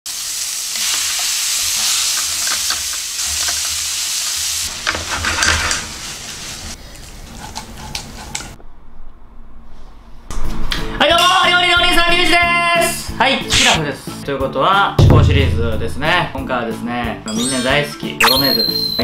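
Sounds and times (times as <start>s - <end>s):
meat sizzling in a frying pan: 0.1s - 6.8s
spatula scraping a pan: 4.7s - 6.8s.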